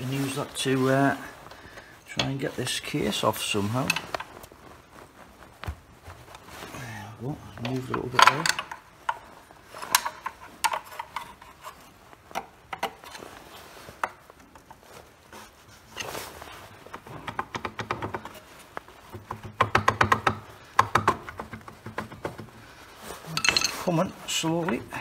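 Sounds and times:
metallic clicks and scrapes: 0:00.0 - 0:04.6, 0:07.6 - 0:25.0.

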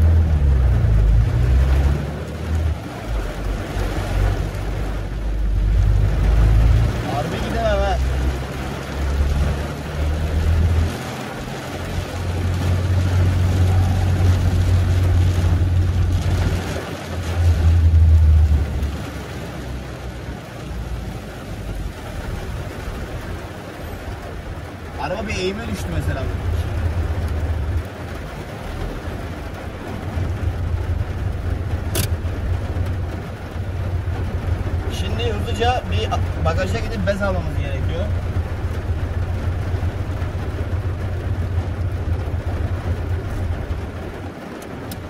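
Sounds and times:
car engine rumble: 0:00.0 - 0:45.0
rain hissing on car: 0:00.0 - 0:45.0.

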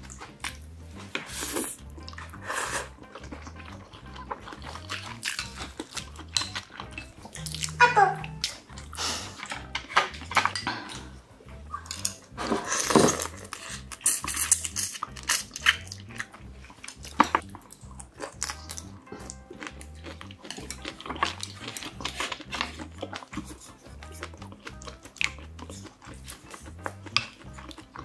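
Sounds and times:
biting and chewing: 0:00.0 - 0:28.0
music with low beat: 0:00.0 - 0:28.0
chopsticks clicking on bowls: 0:04.8 - 0:08.7.

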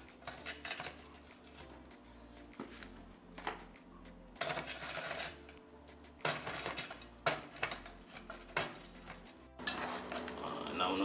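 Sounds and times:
pot and lid clattering: 0:06.2 - 0:10.5.

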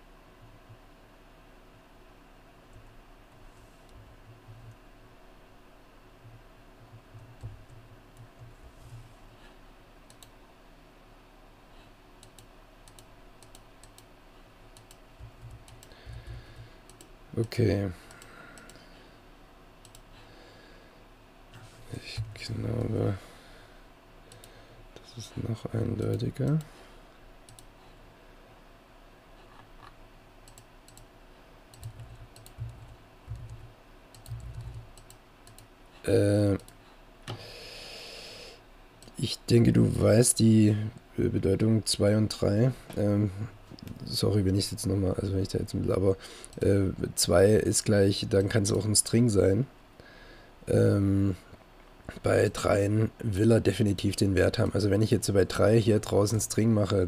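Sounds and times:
low steady hum: 0:00.0 - 0:57.0
keyboard typing clicks: 0:10.1 - 0:10.3, 0:12.2 - 0:14.1, 0:14.8 - 0:18.8, 0:19.8 - 0:20.1, 0:27.5 - 0:27.7, 0:30.4 - 0:31.1, 0:31.7 - 0:35.7.

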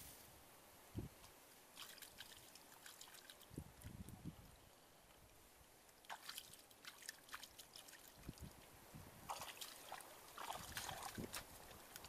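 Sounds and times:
splashing in shallow water: 0:01.7 - 0:03.9, 0:05.9 - 0:12.0.

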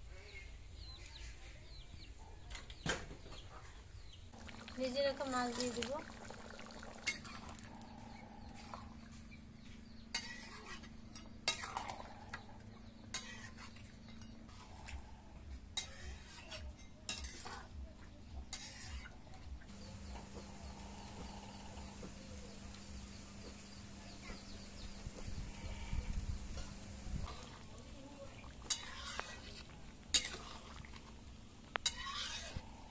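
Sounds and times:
utensil scraping a pan: 0:10.1 - 0:12.0, 0:12.9 - 0:15.0, 0:15.8 - 0:17.7, 0:18.5 - 0:31.1, 0:31.7 - 0:32.8
chickens clucking: 0:19.1 - 0:30.9.

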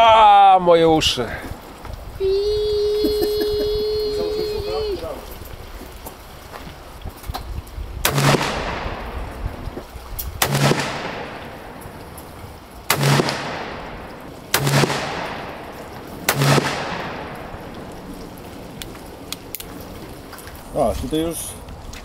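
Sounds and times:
revolver shots echoing: 0:08.1 - 0:09.4, 0:10.4 - 0:12.0, 0:12.9 - 0:17.9.

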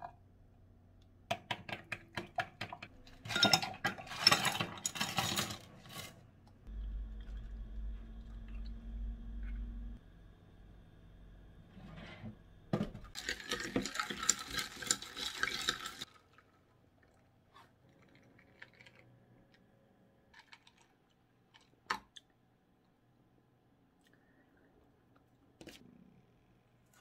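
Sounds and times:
ice cubes clinking in a glass: 0:13.2 - 0:16.1.

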